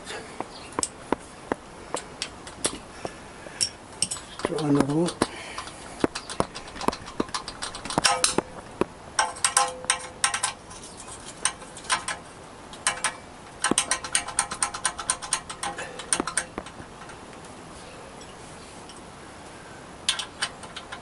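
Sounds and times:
hand ratchet clicking: 0:03.6 - 0:10.6, 0:12.8 - 0:17.2.

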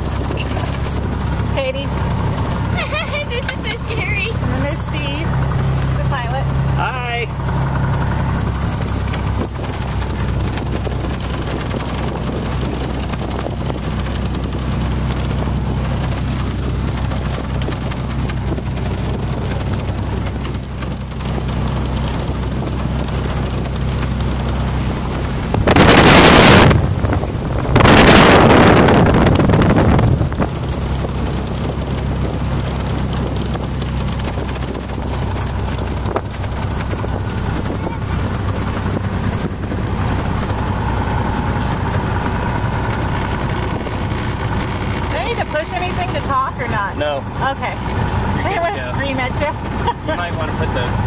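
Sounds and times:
small plane engine running: 0:00.0 - 0:51.0
loud rushing noise bursts: 0:24.6 - 0:30.8.

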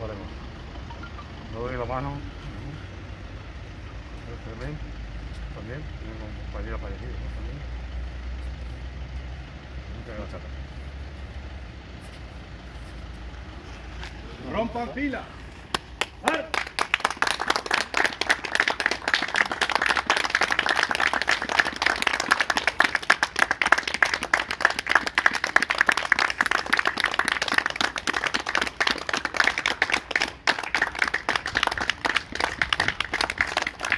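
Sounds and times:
group applauding: 0:15.7 - 0:33.9.

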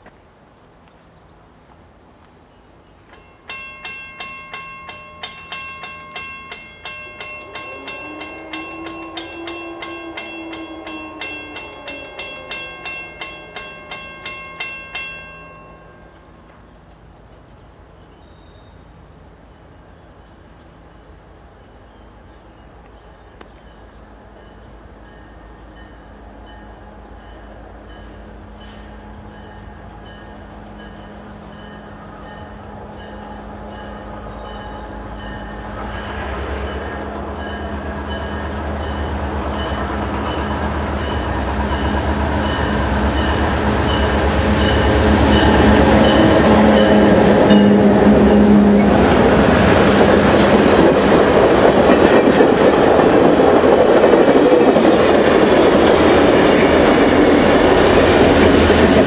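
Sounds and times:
crossing bell ringing: 0:02.9 - 0:16.6, 0:23.7 - 0:59.0
diesel locomotive rumble: 0:19.0 - 0:59.0.

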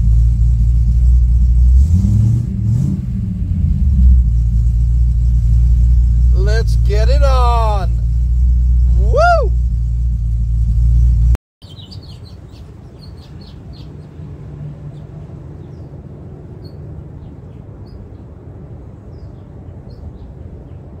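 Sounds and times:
car engine idling: 0:00.0 - 0:18.9
faint low rumble: 0:02.4 - 0:21.0
birds chirping: 0:06.1 - 0:08.2, 0:11.6 - 0:21.0.

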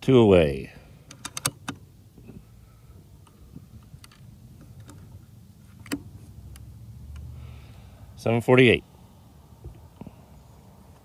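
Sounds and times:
low steady rumble: 0:00.0 - 0:11.0
air rifle light clicks: 0:01.1 - 0:01.8
sharp metallic click: 0:01.1 - 0:01.8.

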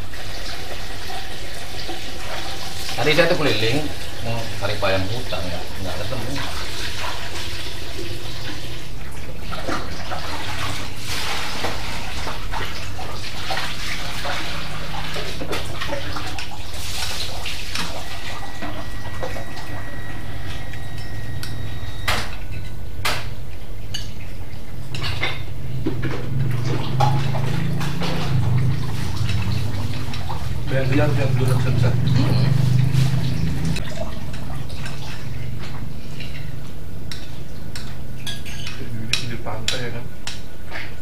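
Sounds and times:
cutlery clicking against bowls: 0:37.1 - 0:40.5.

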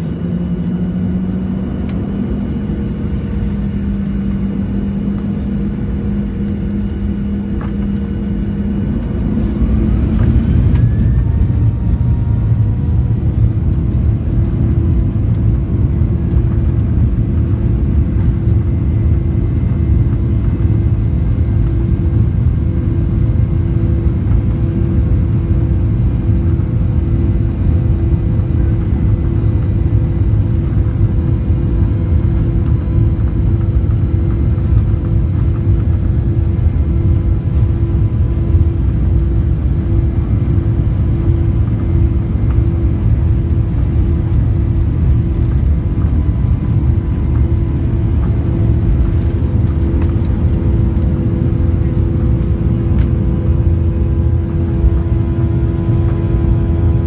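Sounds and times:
jet engines at low power: 0:00.0 - 0:57.0
steady tonal hum: 0:30.2 - 0:57.0.

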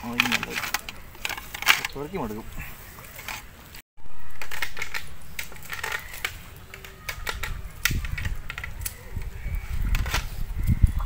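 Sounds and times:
cast net mesh clicking and rustling: 0:00.0 - 0:02.3, 0:04.2 - 0:09.2.

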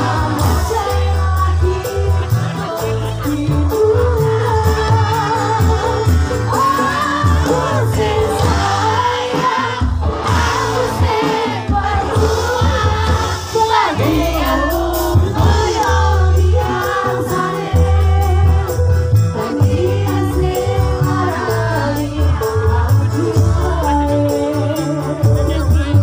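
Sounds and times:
crowd singing along: 0:00.0 - 0:26.0
lead vocal singing: 0:00.0 - 0:26.0
live band music with heavy bass: 0:00.0 - 0:26.0.

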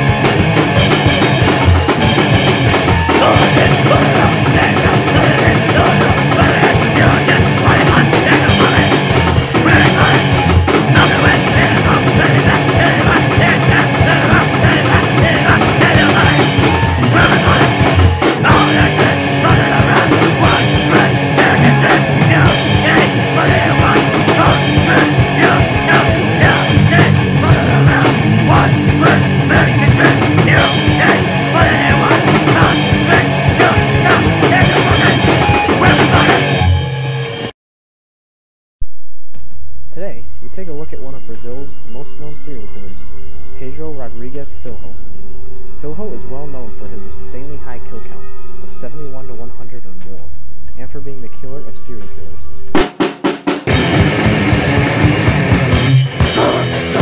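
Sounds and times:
hardcore punk band playing: 0:00.0 - 0:37.5, 0:52.6 - 0:57.0.

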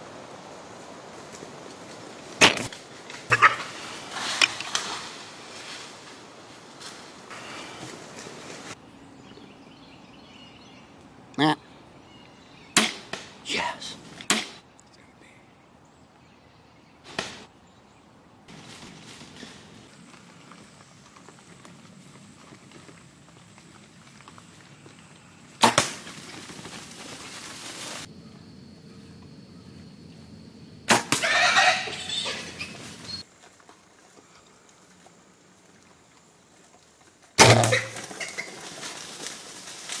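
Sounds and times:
rustling noise: 0:01.1 - 0:08.8, 0:18.5 - 0:25.2, 0:25.9 - 0:28.1, 0:32.0 - 0:40.0
loud gunshot: 0:12.8 - 0:13.2, 0:30.9 - 0:31.2
arrow striking knocks: 0:12.8 - 0:13.3, 0:14.2 - 0:14.6, 0:17.1 - 0:17.5, 0:30.9 - 0:31.2, 0:37.4 - 0:38.0.

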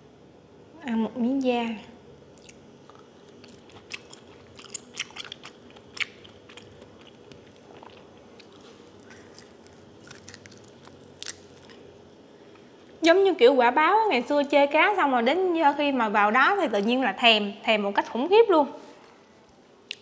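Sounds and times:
person chewing wet smacks: 0:02.4 - 0:11.9.

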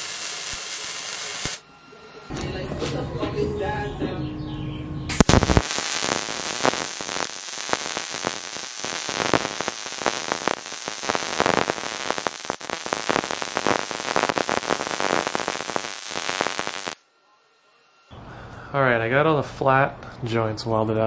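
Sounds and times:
welding arc crackling sizzle: 0:00.0 - 0:01.6, 0:05.1 - 0:17.0.

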